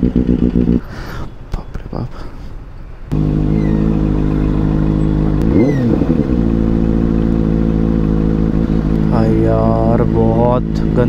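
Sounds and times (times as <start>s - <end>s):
motorcycle engine idling: 0.0s - 0.9s, 3.1s - 11.0s
engine throttle blip: 3.1s - 10.0s.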